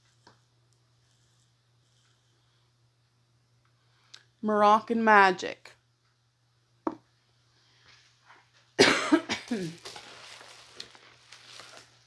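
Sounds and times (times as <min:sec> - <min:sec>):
woman coughing: 0:08.8 - 0:09.9
plastic mailer rustling: 0:09.4 - 0:12.0.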